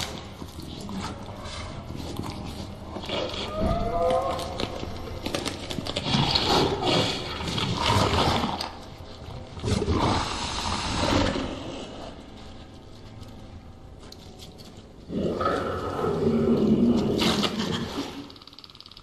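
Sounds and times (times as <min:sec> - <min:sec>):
creature rasping and growling: 0:09.6 - 0:12.2.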